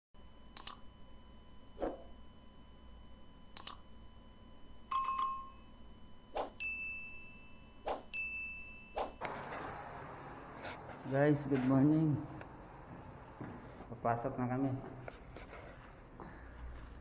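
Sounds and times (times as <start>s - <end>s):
mouse clicks: 3.6s - 3.8s
high chime tones: 6.5s - 9.2s
bell-like ding: 6.6s - 9.2s.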